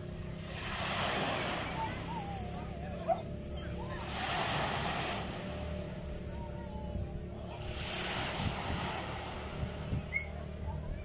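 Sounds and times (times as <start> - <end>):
waves washing up pebble shore: 0.4 - 2.1, 4.0 - 5.7, 7.6 - 10.1.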